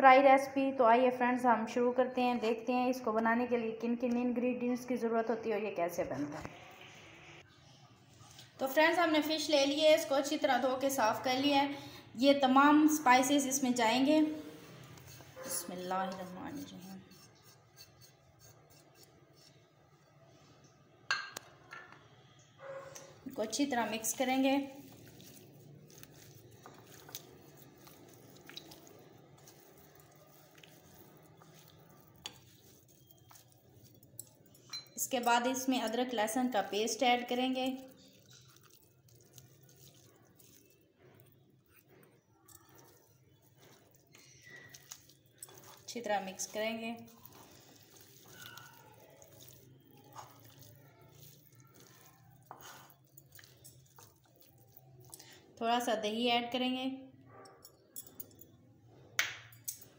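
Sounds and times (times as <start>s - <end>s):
wet squishing of fish: 23.0s - 34.6s, 35.5s - 55.6s.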